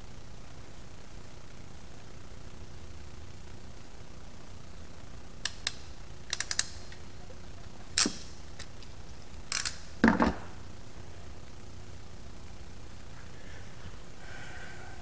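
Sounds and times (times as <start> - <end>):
wire strippers clicking: 5.4 - 10.3
tool clattering on bench: 10.0 - 10.5.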